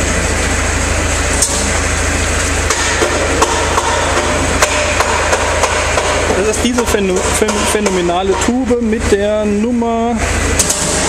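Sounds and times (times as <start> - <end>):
workshop low hum: 0.0 - 11.0
sharp knocks: 2.7 - 8.6.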